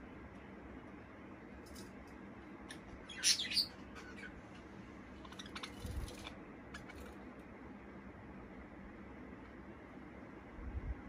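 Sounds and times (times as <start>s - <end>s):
budgerigars chirping: 3.0s - 4.4s, 5.2s - 7.2s.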